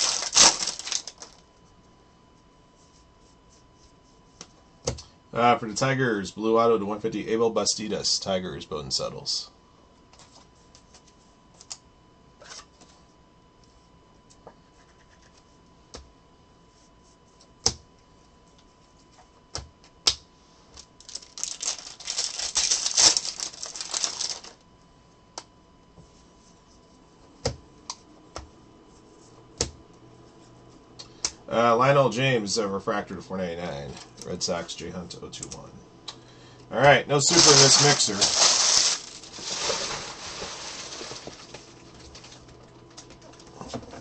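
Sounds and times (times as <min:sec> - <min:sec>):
rapid rattle of cards: 0:00.0 - 0:01.4, 0:21.0 - 0:24.6, 0:37.2 - 0:42.6.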